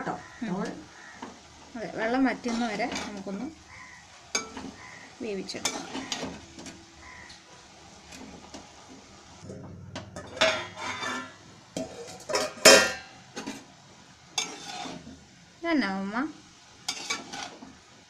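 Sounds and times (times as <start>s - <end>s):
spoon scraping in metal pot: 2.4s - 3.3s, 5.6s - 6.8s, 10.2s - 13.6s, 14.4s - 15.2s, 16.9s - 17.6s
loud metal clank: 9.9s - 13.2s
spoon clinking on pot: 10.2s - 13.1s.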